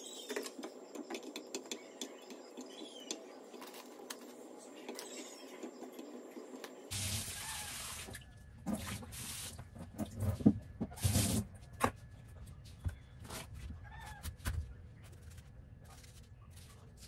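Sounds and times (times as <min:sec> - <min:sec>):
tap water running: 0:06.9 - 0:11.4.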